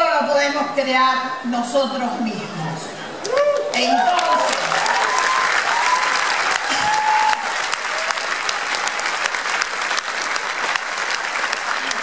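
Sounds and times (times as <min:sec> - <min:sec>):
large crowd applauding: 0:03.2 - 0:12.0.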